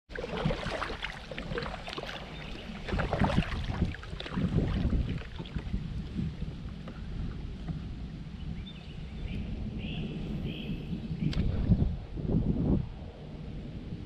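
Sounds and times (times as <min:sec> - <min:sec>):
kayak paddle splashing: 0:00.1 - 0:08.0
wind rumble on microphone: 0:00.1 - 0:14.0.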